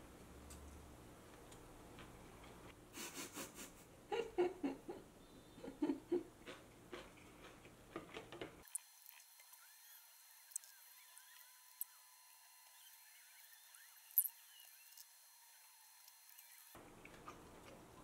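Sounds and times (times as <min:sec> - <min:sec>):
soft giggles: 0:03.0 - 0:06.3.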